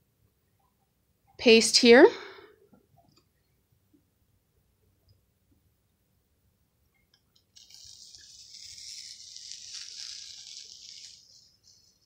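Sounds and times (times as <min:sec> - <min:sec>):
transfer peeling off chalkboard: 0:07.6 - 0:12.0.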